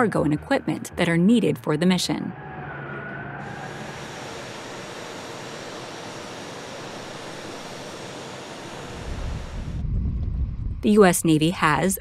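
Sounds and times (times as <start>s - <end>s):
distant machinery: 0.0s - 12.0s
wind roar: 8.7s - 12.0s
deep rumble: 9.0s - 12.0s.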